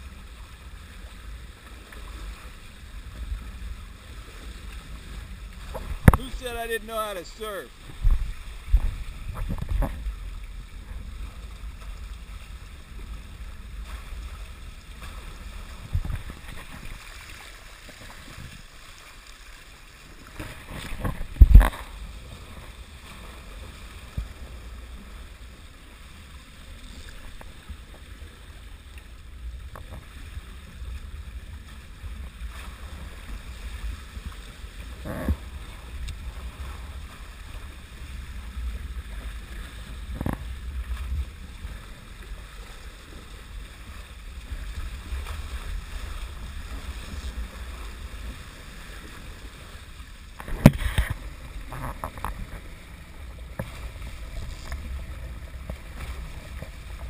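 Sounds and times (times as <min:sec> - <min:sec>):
water rushing along hulls: 0:00.0 - 0:57.0.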